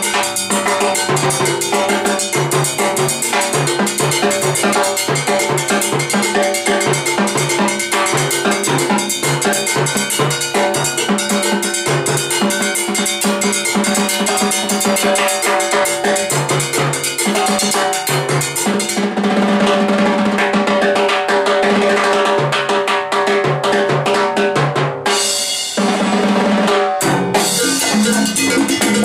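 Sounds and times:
electric bass line: 0:27.0 - 0:29.0
timbales and cymbal rhythm: 0:27.0 - 0:29.0.

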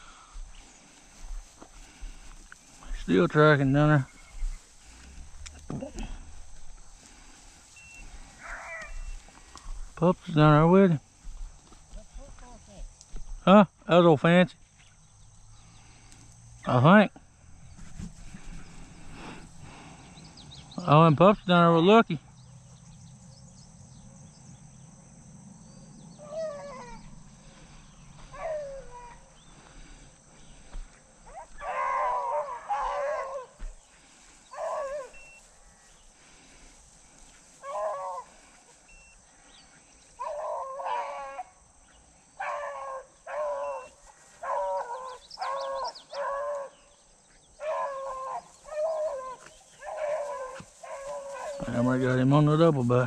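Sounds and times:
hounds baying: 0:00.9 - 0:09.8, 0:26.0 - 0:41.6, 0:42.4 - 0:53.0.

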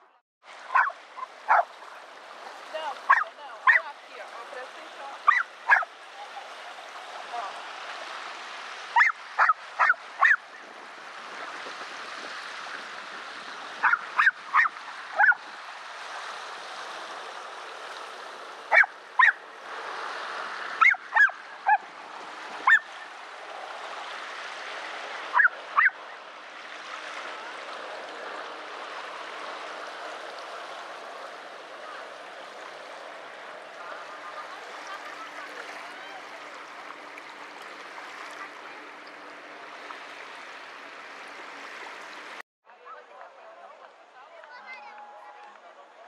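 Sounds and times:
animal barking honking calls: 0:00.7 - 0:01.7, 0:03.0 - 0:03.9, 0:05.2 - 0:05.9, 0:09.0 - 0:10.4, 0:18.7 - 0:19.4.

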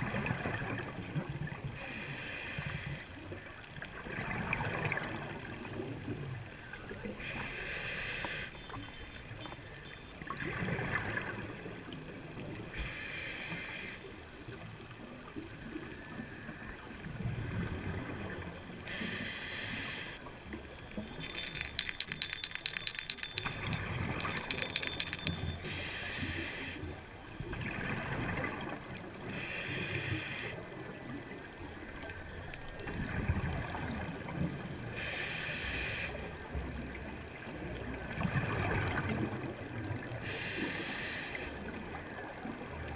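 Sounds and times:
metallic rattling clicks: 0:08.2 - 0:10.2, 0:21.1 - 0:26.4.

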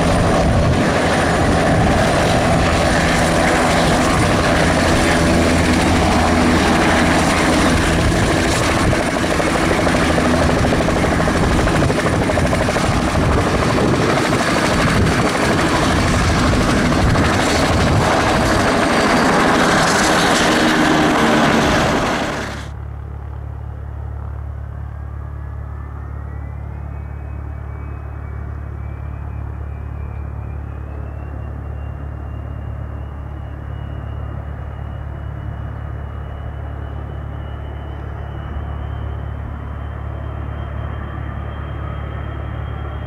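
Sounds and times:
helicopter engine and rotor: 0:00.0 - 0:43.0.

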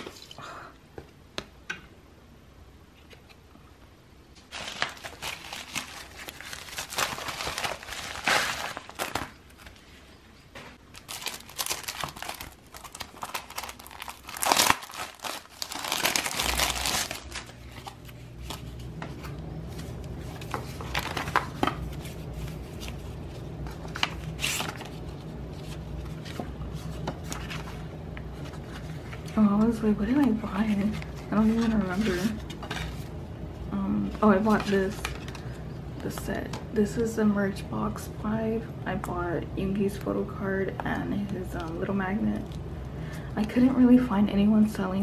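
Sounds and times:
steady low hum: 0:00.0 - 0:45.0
package wrapping tearing and crumpling: 0:04.5 - 0:09.7, 0:10.9 - 0:18.6, 0:20.7 - 0:22.0.

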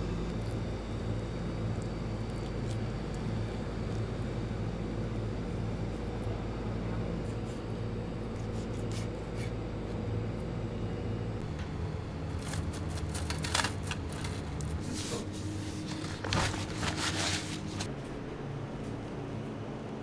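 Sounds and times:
low hum: 0:00.0 - 0:19.6
paper towel rustling: 0:12.4 - 0:17.9.

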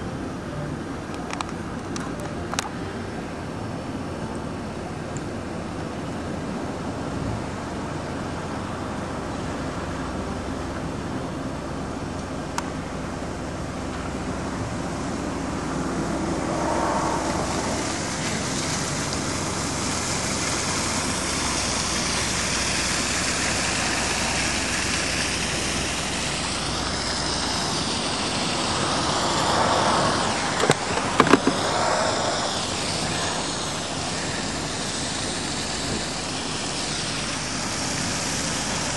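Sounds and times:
road traffic noise: 0:00.0 - 0:38.9
vehicle passing close: 0:13.1 - 0:20.8, 0:21.4 - 0:36.0.

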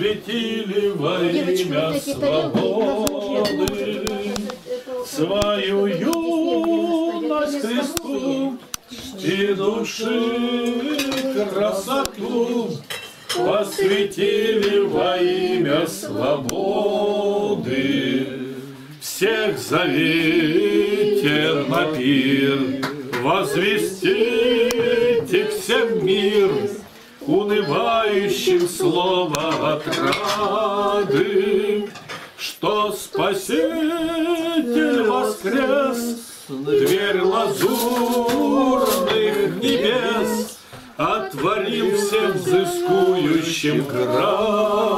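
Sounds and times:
voices singing a hymn unaccompanied: 0:00.0 - 0:44.9
cutlery and dishes clinking: 0:01.5 - 0:04.6, 0:10.5 - 0:15.0, 0:29.4 - 0:31.2, 0:31.8 - 0:32.5, 0:36.8 - 0:40.0.

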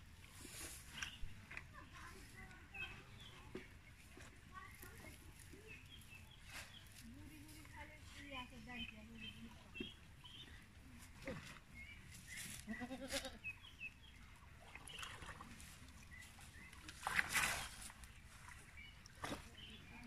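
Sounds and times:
water sloshing: 0:00.0 - 0:20.0
goat bleating: 0:12.6 - 0:13.4
water splash: 0:16.8 - 0:19.6.

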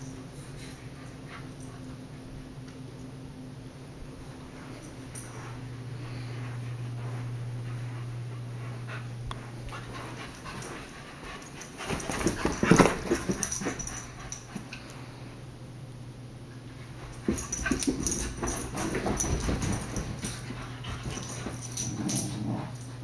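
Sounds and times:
puppies scuffling: 0:04.6 - 0:15.2, 0:16.8 - 0:23.0.

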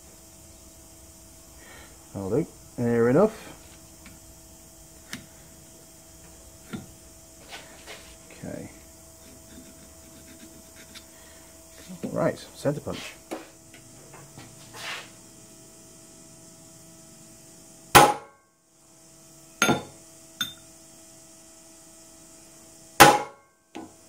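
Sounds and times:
hammer tapping metal punch: 0:19.6 - 0:20.6.

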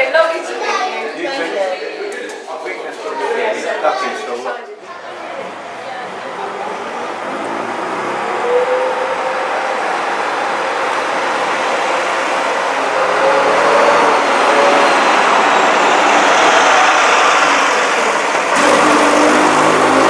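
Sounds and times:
bus diesel engine driving past: 0:04.9 - 0:20.0.

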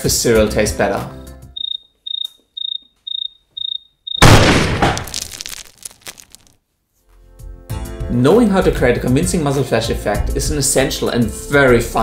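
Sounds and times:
high electronic beeps: 0:01.6 - 0:04.4
loud gunshot with echo: 0:04.2 - 0:05.1.

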